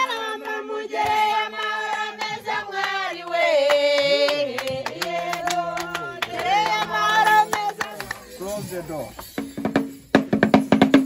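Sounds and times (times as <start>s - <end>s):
voices singing long notes: 0.0s - 8.2s.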